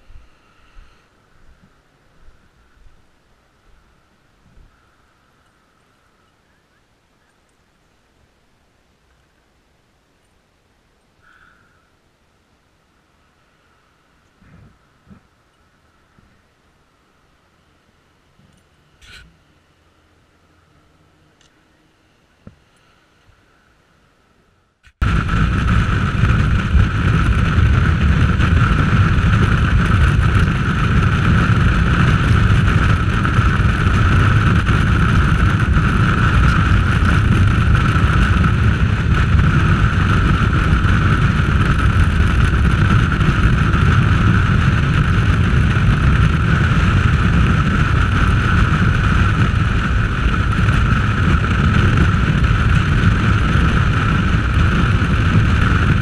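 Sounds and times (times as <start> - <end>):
wind noise on microphone: 0.0 - 3.0, 4.4 - 4.9, 24.8 - 56.0
road noise: 0.0 - 56.0
motorcycle engine: 24.9 - 56.0.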